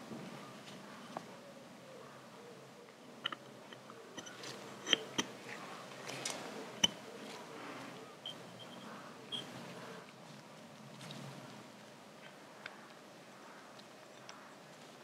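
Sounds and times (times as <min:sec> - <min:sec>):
soft handling rustle: 0:03.3 - 0:08.2.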